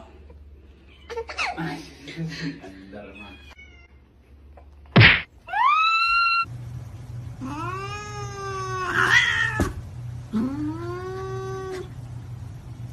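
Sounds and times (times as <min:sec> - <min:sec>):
cat meowing and yowling: 0:05.5 - 0:06.5, 0:07.5 - 0:09.7
steady low hum: 0:06.5 - 0:12.9.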